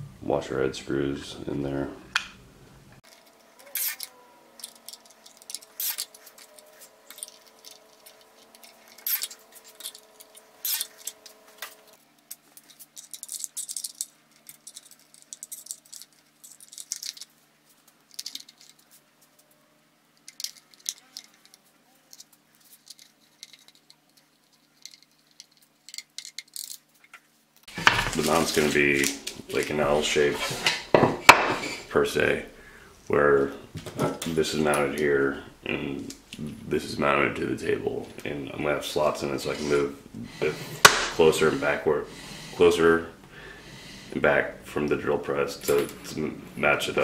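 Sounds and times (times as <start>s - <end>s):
faint steady hum: 0.0s - 47.0s
screws and plastic box clicking: 3.1s - 11.4s, 22.2s - 26.8s.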